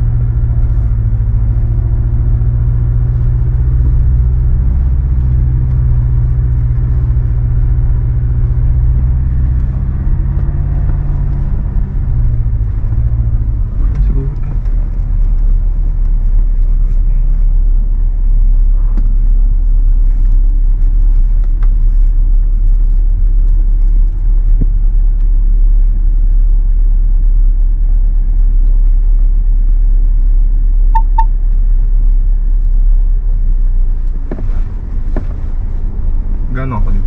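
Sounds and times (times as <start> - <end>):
road and engine rumble in cabin: 0.0 - 37.0
short high beeps: 31.0 - 31.3.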